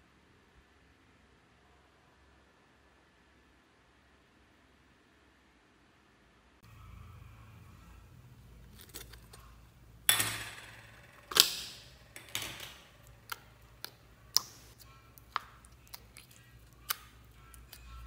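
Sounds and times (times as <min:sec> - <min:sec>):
sticky slime clicks: 0:13.2 - 0:17.9.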